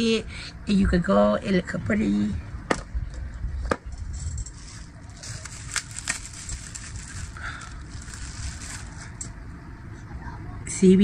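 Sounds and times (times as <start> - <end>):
packaging rustling and crinkling: 4.1 - 9.3.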